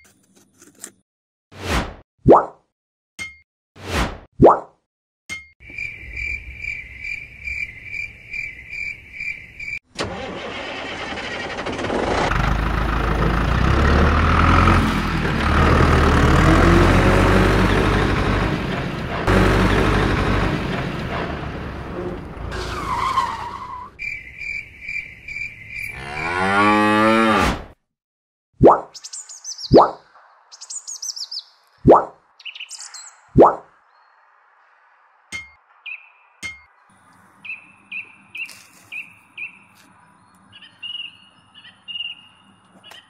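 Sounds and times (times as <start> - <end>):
vehicle engine running: 10.1 - 22.6
cattle mooing: 25.9 - 27.4.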